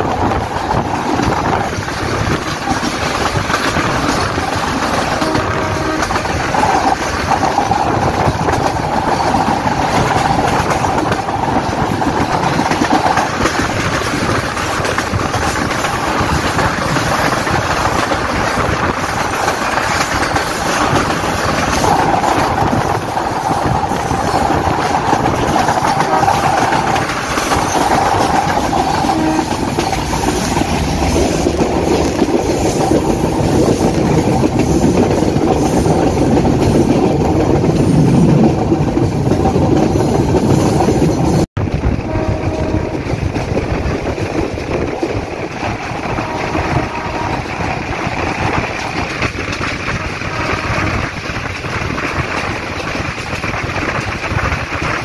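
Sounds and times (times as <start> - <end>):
train wheels on rails: 0.0 - 55.0.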